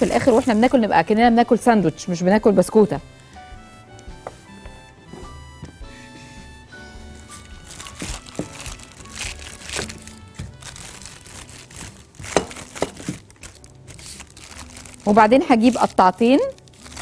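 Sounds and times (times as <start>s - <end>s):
background music: 0.0s - 17.0s
parchment paper crinkling: 7.3s - 17.0s.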